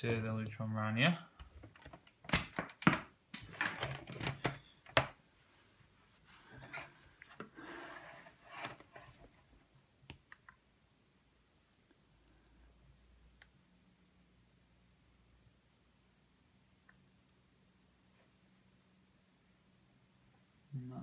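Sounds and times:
soft scraping and rustling: 5.4s - 9.6s.

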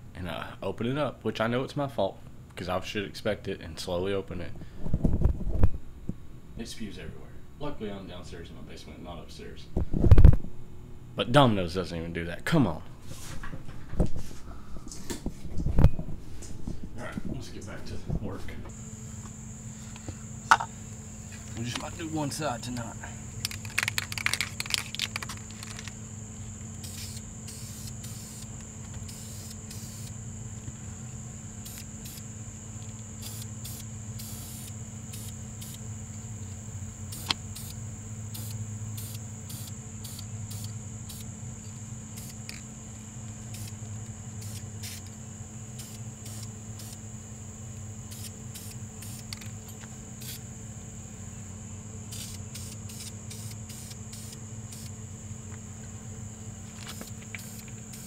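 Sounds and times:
spray paint hissing from aerosol can: 23.4s - 26.0s, 26.7s - 30.2s, 31.6s - 32.3s, 32.9s - 35.9s, 37.0s - 41.3s, 42.1s - 42.6s, 43.4s - 47.0s, 48.0s - 49.5s, 50.2s - 50.4s, 52.1s - 55.0s, 56.8s - 58.0s.

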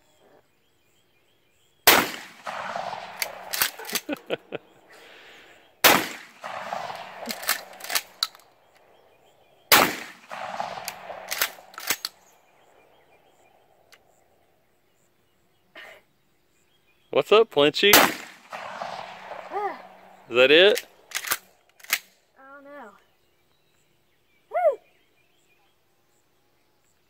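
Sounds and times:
shotgun shots with echo: 1.8s - 13.6s, 17.9s - 22.0s.

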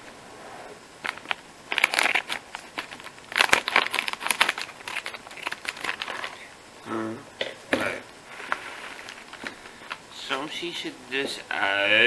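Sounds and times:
snack bag crinkling: 1.0s - 6.5s, 8.5s - 10.0s.

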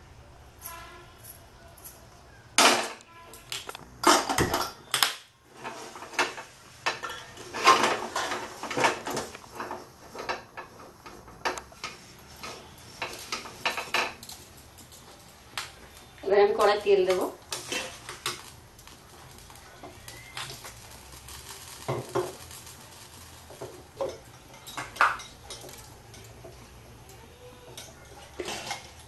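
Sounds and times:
metal wok clanking and scraping: 5.5s - 14.5s, 17.5s - 18.6s, 19.3s - 29.0s.

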